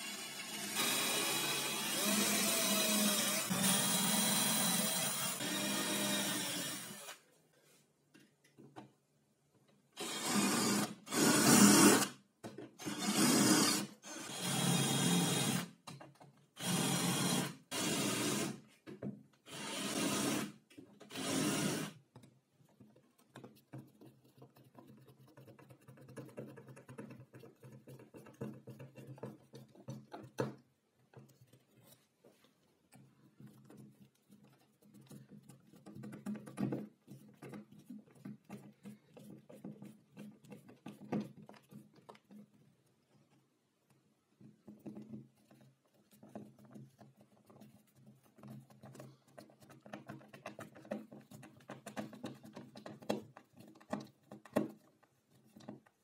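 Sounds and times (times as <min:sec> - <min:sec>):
power drill drilling: 0:00.0 - 0:07.2, 0:10.0 - 0:12.1, 0:12.8 - 0:15.7, 0:16.6 - 0:18.6, 0:19.5 - 0:20.5, 0:21.1 - 0:21.9.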